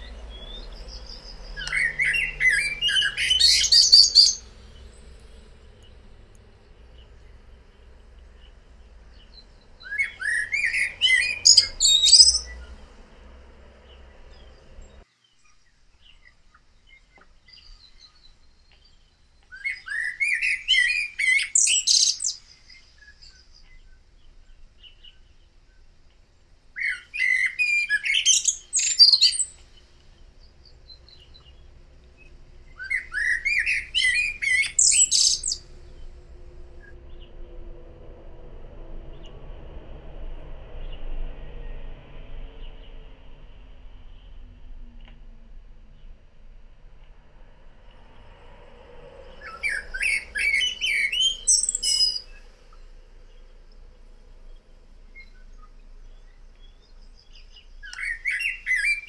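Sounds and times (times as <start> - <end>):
blackbird singing: 0.0 - 12.9, 13.8 - 25.5, 26.8 - 36.1, 49.4 - 53.5, 55.2 - 59.0.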